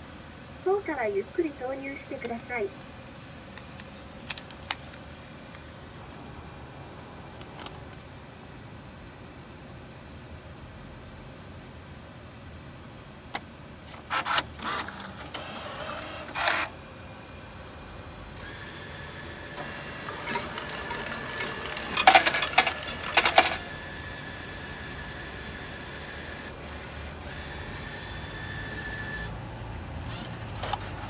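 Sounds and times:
short mechanical whirs: 14.1 - 16.8, 18.4 - 29.4
steady motor hum: 14.6 - 31.0
machine counting out notes: 18.4 - 29.4
bill acceptor click: 19.4 - 24.1.

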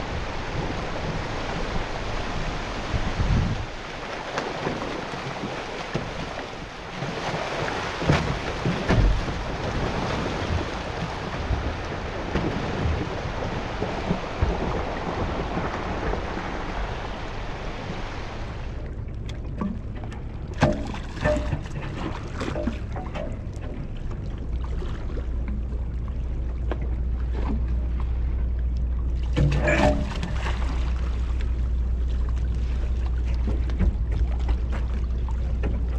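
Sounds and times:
wind on microphone: 0.0 - 4.0, 4.6 - 18.8
low steady hum: 0.0 - 35.9
water rushing along a boat bow: 0.0 - 35.9.

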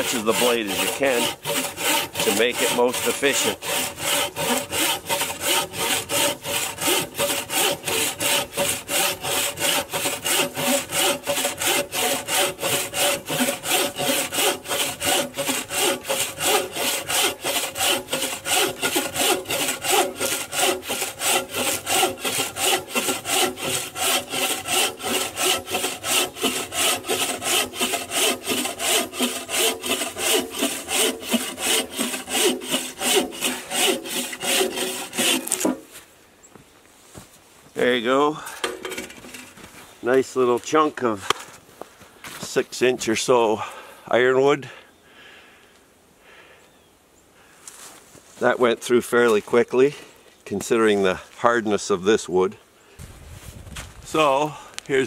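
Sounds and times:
bow saw cutting a log: 0.0 - 36.0.

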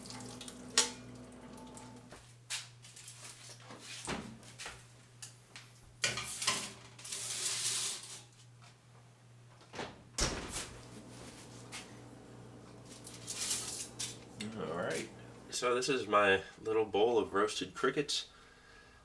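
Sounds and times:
oven door shutting: 9.8 - 11.0
baking tray scraping on oven rack: 12.8 - 14.3.

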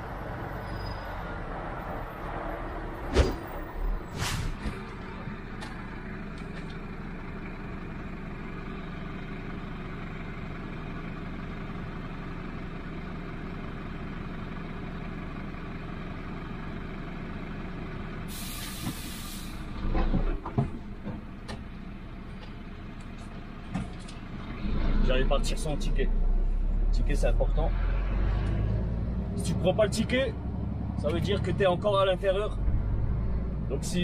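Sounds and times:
air brake hiss: 4.1 - 4.6, 18.3 - 19.7
truck diesel engine idling: 4.7 - 24.5.

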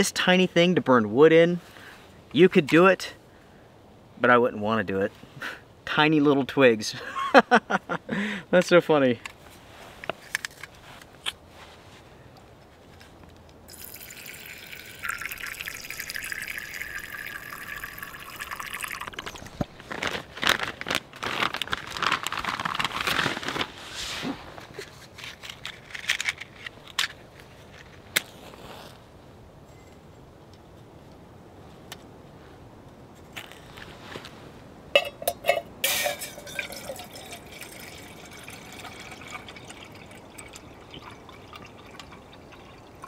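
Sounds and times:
liquid pouring: 13.7 - 19.6, 35.0 - 43.0
light clinks and knocks: 35.0 - 37.3.

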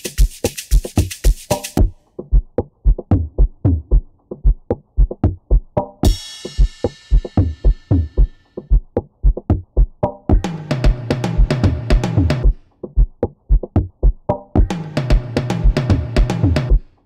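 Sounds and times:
hi-hat ticks: 0.0 - 2.4
kick drum booms: 1.8 - 16.9.

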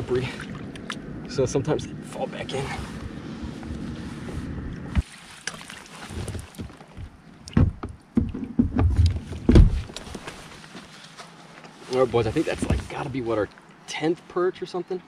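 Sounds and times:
knocks and bumps on a kayak: 6.1 - 10.2.

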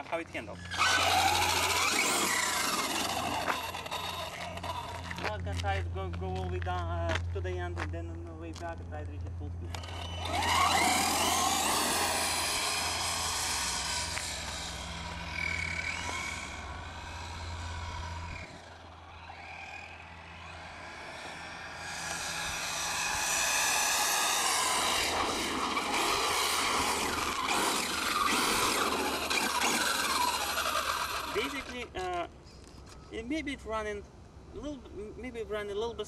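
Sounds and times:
rc truck electric motor whine: 0.6 - 5.2, 9.7 - 31.9.

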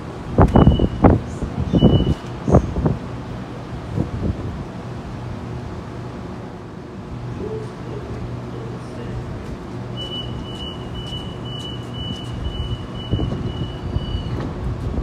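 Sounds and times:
train low hum: 0.0 - 15.0
high warning beeps: 0.5 - 1.1, 1.7 - 2.2, 10.0 - 14.4
sliding doors closing thud: 12.0 - 15.0.

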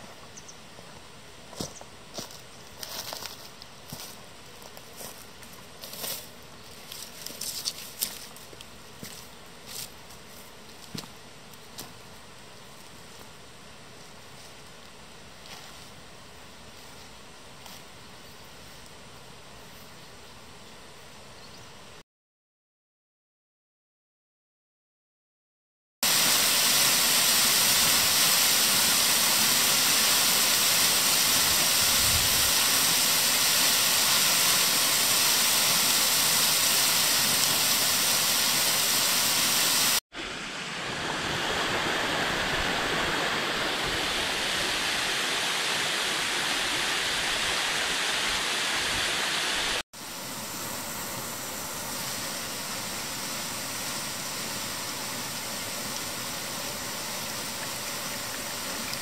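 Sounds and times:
waterfall rushing: 26.0 - 59.0.

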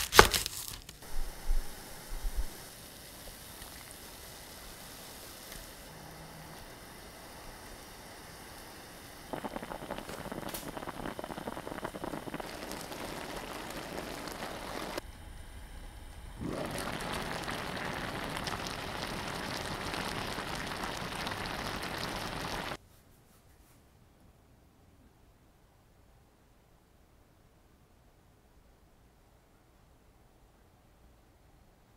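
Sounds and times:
liquid boiling hard in a pot: 1.0 - 15.0, 16.3 - 22.8.

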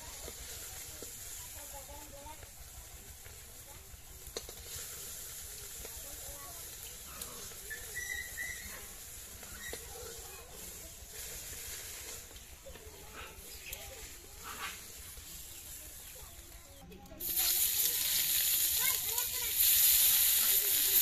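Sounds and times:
hot oil sizzling in a wok: 0.0 - 21.0
metal spatula scraping a wok: 6.6 - 16.1.

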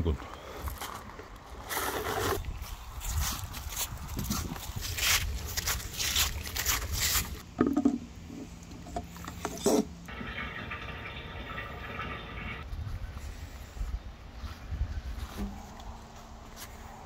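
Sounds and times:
plastic container dragged over leaves: 1.6 - 2.4.

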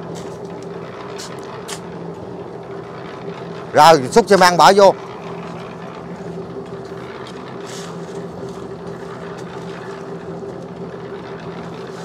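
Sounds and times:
concrete mixer humming: 0.0 - 12.0
faint shovel scrapes: 7.3 - 9.1.

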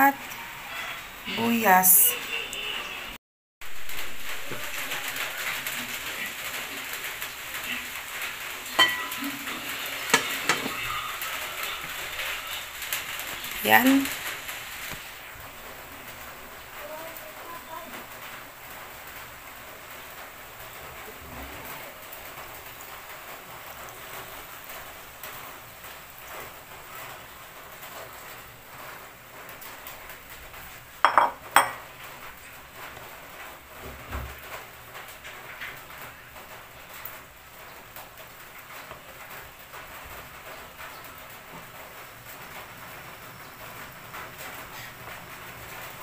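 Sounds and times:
soft crackly hiss: 3.6 - 31.1, 31.8 - 46.0
metal cooking pot clinking: 8.8 - 9.4, 31.1 - 31.8.

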